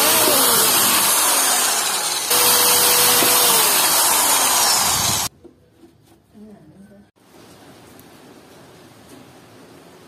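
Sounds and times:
electric drill boring wood: 0.0 - 5.3.

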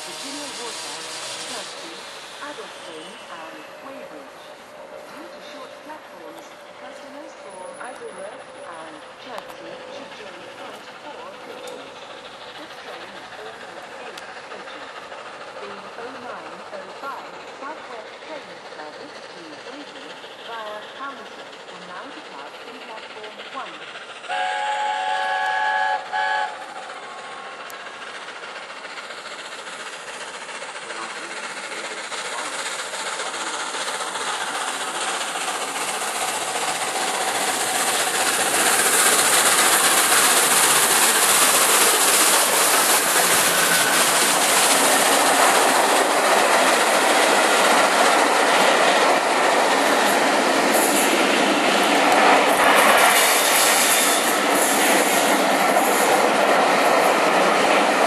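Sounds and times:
steam train rumble and wheel clatter: 0.0 - 58.0
chord-like train whistle: 24.3 - 26.7.

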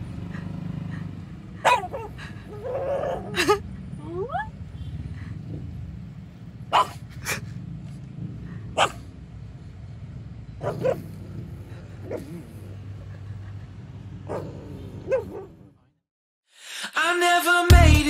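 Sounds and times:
low rumble of car: 0.0 - 16.0
dog barking: 1.6 - 3.4, 6.7 - 7.0, 8.7 - 9.1, 10.6 - 11.2, 12.0 - 12.7, 14.2 - 15.6.

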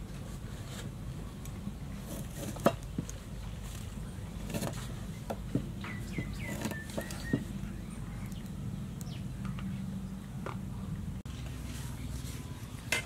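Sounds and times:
steady low hum: 0.0 - 13.0
birds chirping: 2.8 - 12.9.

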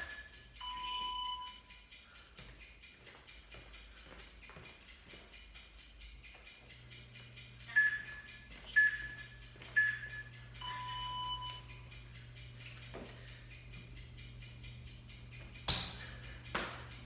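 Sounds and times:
timer beeps: 0.0 - 1.8, 7.4 - 12.0
low hum: 3.2 - 17.0.

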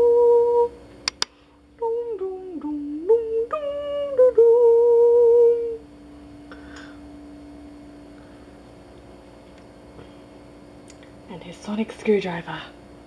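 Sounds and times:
woman humming a tune: 0.0 - 0.8, 1.8 - 5.9
faint steady hum: 0.0 - 13.0.

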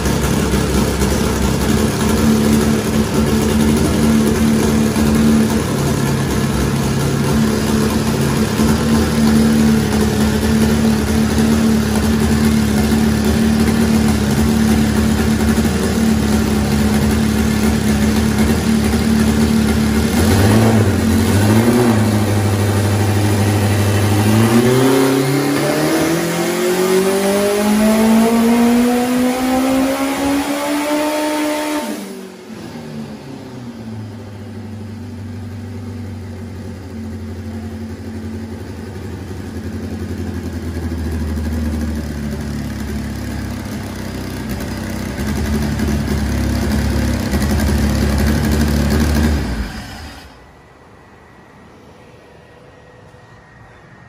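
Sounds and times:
turbocharged car engine revving: 0.0 - 32.7, 43.6 - 50.4.

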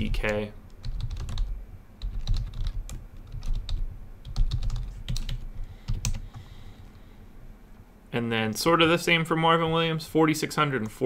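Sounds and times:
computer keyboard typing: 0.0 - 6.5.

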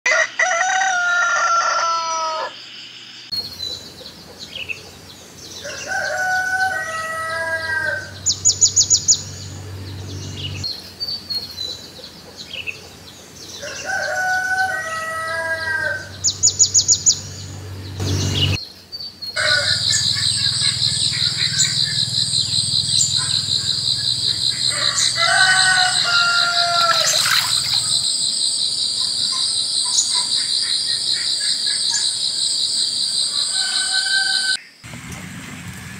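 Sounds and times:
rooster crowing: 0.0 - 2.6, 5.6 - 8.5, 13.6 - 17.4, 19.4 - 28.1, 33.3 - 34.7
high bird trills: 19.4 - 32.2
high-pitched insect chorus: 19.4 - 34.6.

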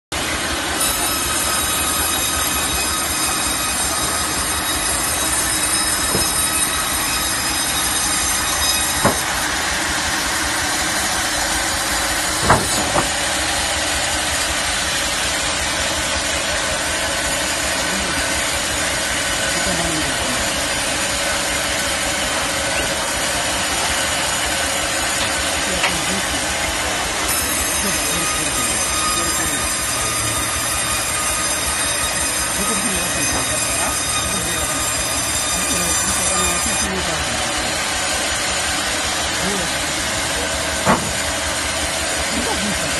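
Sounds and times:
band saw cutting log: 0.1 - 42.9
high whining tones: 0.2 - 42.9
sharp knocks: 5.3 - 6.7, 7.8 - 9.4, 12.3 - 13.3, 40.8 - 41.4.

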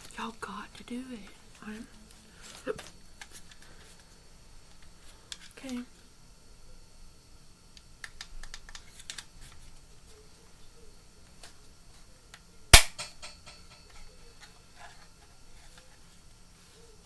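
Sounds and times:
loud sharp snap: 12.7 - 13.6.

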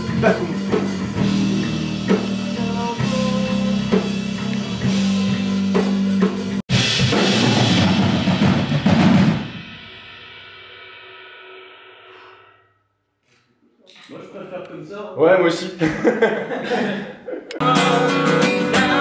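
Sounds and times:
band playing: 0.0 - 9.7, 17.6 - 19.0
bass drum and snare: 0.0 - 10.0.

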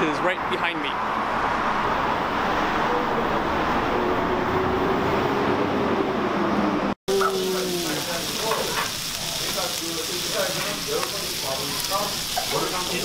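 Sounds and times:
street traffic: 0.0 - 13.0
pork sizzling on a grill: 7.1 - 13.0.

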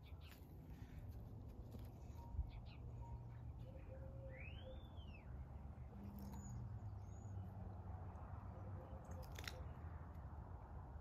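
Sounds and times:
sharp crunching clicks: 9.0 - 9.8.

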